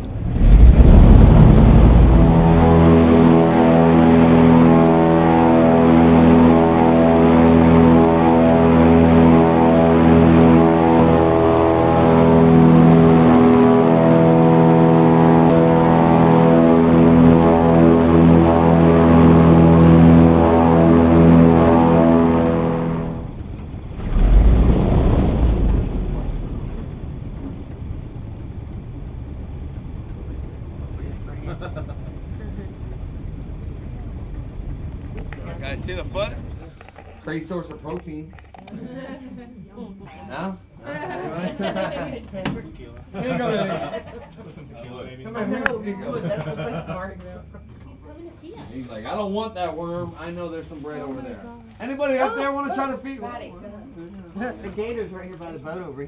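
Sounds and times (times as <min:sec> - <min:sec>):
airboat engine and propeller drone: 0:00.0 - 0:36.6
boat idling low rumble: 0:00.0 - 0:36.8.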